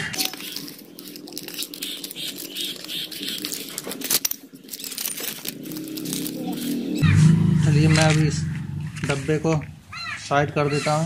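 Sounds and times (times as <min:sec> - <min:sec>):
plastic wrapping rustling: 0:00.0 - 0:07.0.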